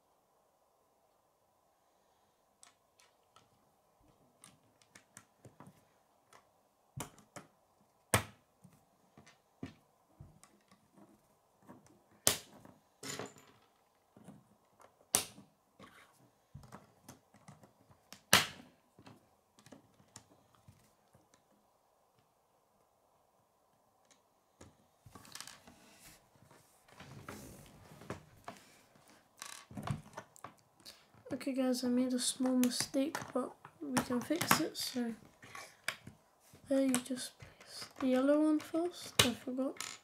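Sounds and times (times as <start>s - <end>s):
small plastic clicks and taps: 4.4s - 7.5s
loud plastic snaps: 18.1s - 18.7s.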